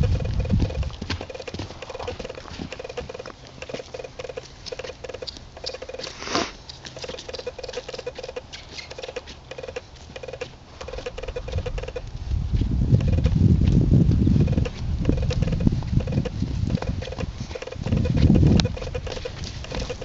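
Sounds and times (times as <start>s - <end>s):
horse hoofbeats trotting: 0.0s - 20.0s.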